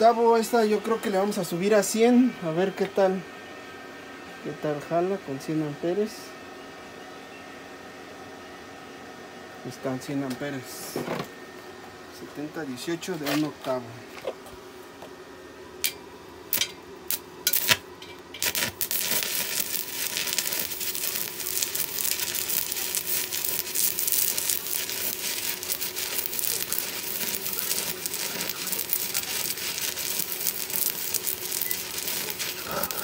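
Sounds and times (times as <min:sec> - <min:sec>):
welding arc crackling: 0:15.8 - 0:33.0
welding arc snaps: 0:15.8 - 0:33.0.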